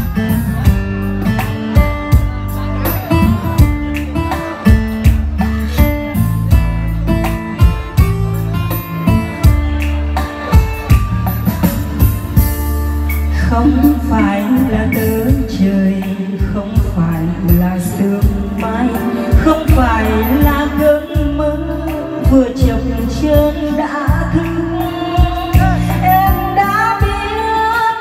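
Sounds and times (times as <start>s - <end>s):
drum beat: 0.0s - 13.0s, 16.5s - 21.4s, 22.2s - 27.4s
electronic keyboard music: 0.0s - 28.0s
woman singing: 13.3s - 28.0s.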